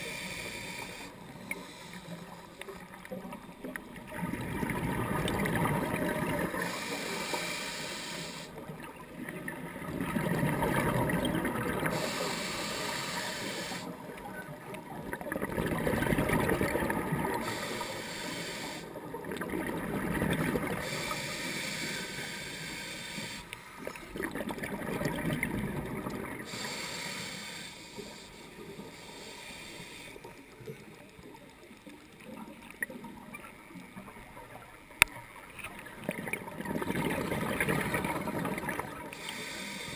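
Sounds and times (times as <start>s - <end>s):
regulator hiss on inhale: 0.0s - 3.2s, 6.4s - 8.7s, 11.8s - 14.2s, 17.2s - 19.1s, 20.7s - 24.0s, 26.4s - 31.4s, 39.0s - 39.9s
rumble of exhaled bubbles: 3.1s - 6.6s, 8.8s - 12.0s, 14.5s - 17.5s, 19.0s - 20.9s, 23.8s - 26.5s, 35.8s - 39.1s.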